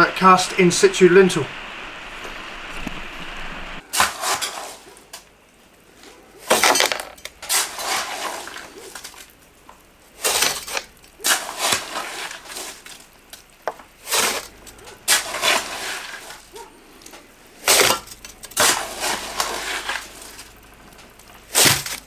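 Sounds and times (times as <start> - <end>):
steady hiss: 0.0 - 6.6, 7.3 - 22.0
hand tools clinking and scraping: 13.8 - 22.0.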